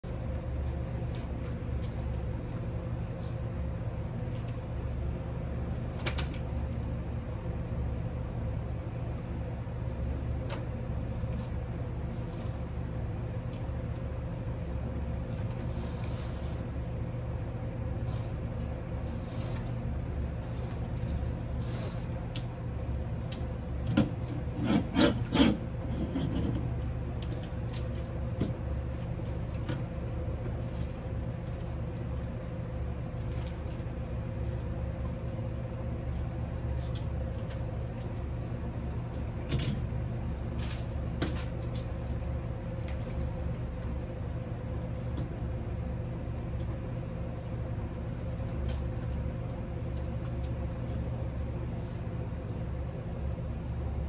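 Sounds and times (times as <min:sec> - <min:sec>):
steady low hum: 0:00.0 - 0:54.0
claws scraping on wood: 0:24.2 - 0:26.6.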